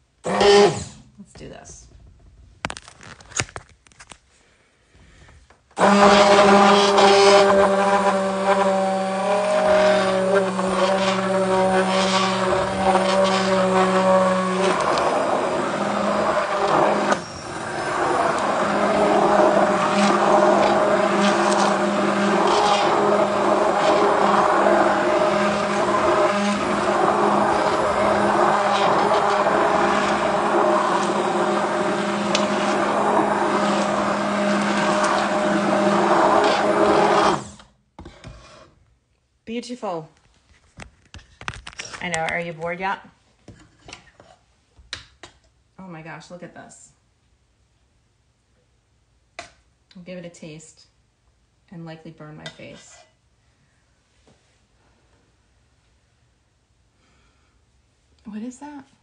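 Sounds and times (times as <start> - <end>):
immersion blender whining: 0.2 - 1.0, 5.8 - 37.8.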